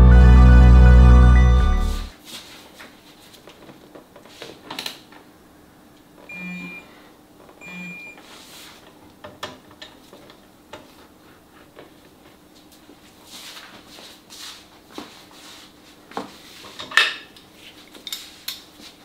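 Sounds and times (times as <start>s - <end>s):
low buzz: 0.0s - 2.1s
high electronic beeps: 6.3s - 6.8s.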